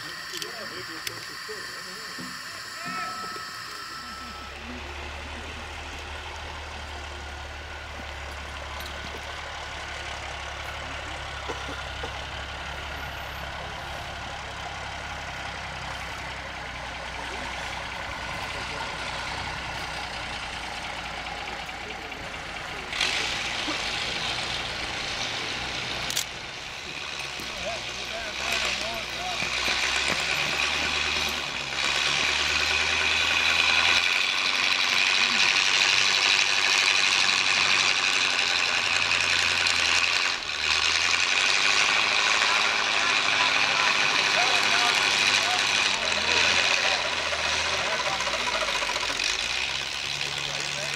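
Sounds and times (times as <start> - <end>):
low hum: 0.0 - 12.9
steam engine low hum: 0.0 - 50.9.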